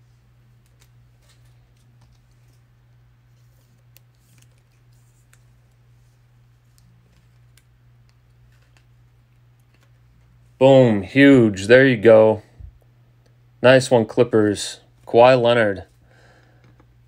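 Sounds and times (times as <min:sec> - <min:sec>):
steady low hum: 0:00.0 - 0:17.0
trading cards clicking and scratching: 0:03.3 - 0:05.9, 0:06.6 - 0:10.3.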